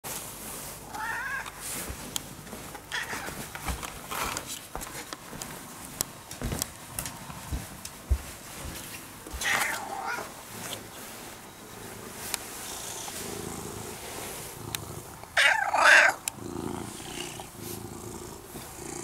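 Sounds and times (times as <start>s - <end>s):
cat meowing: 0.9s - 1.5s, 9.4s - 10.3s, 15.4s - 16.2s.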